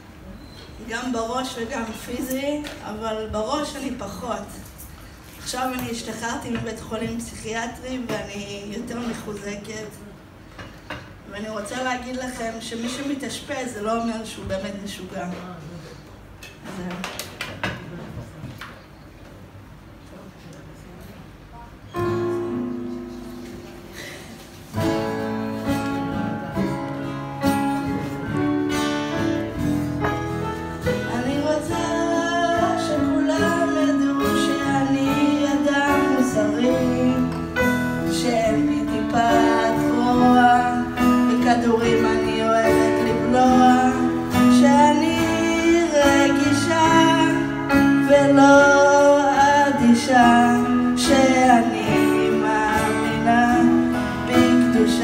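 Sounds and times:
acoustic guitar: 21.6s - 55.0s
woman singing: 30.8s - 55.0s.

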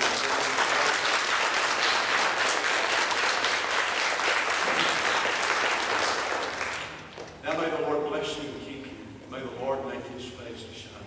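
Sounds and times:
congregation applauding: 0.0s - 7.7s.

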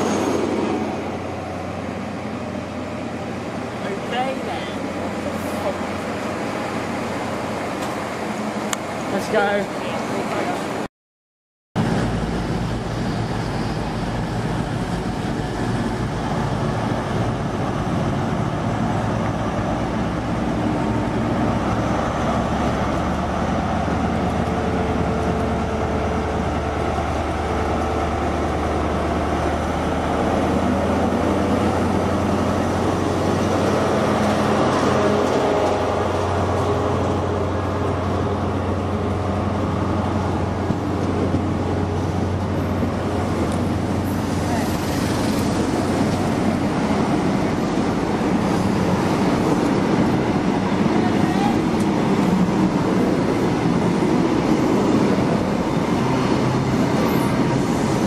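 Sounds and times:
diesel engine humming: 11.8s - 58.0s.

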